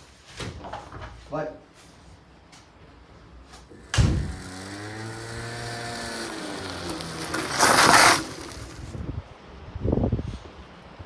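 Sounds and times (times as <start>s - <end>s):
moped engine revving: 3.7s - 9.0s.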